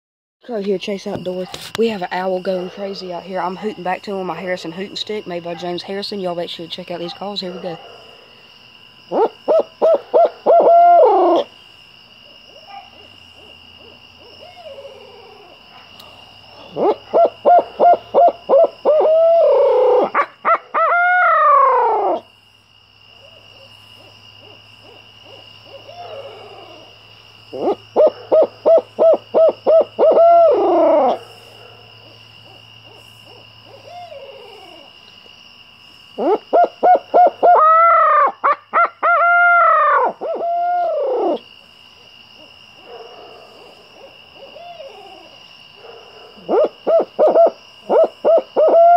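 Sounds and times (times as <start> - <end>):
faint owl hoots: 9.1 - 11.5, 13.4 - 15.6, 16.6 - 22.2, 24.0 - 26.9, 27.5 - 31.4, 32.4 - 35.0, 36.2 - 41.5, 44.0 - 45.4, 46.4 - 48.9.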